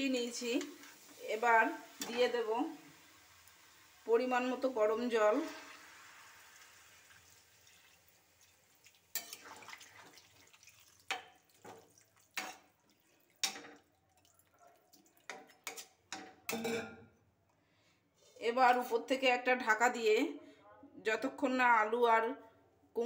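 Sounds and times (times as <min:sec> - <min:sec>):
water trickling into pan: 0:00.0 - 0:16.6
spatula stirring gravy in metal pan: 0:07.9 - 0:16.4.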